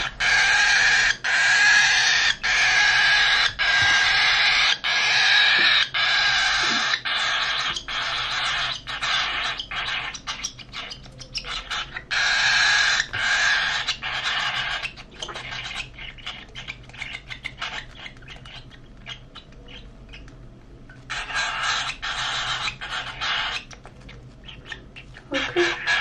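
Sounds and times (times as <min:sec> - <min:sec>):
baby bird raspy chittering: 0:00.0 - 0:20.4, 0:21.0 - 0:26.0.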